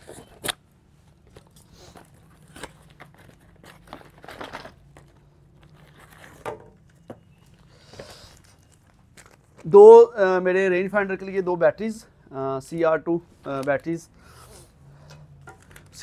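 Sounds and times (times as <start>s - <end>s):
paper packet rustling and crinkling: 0.0s - 9.8s.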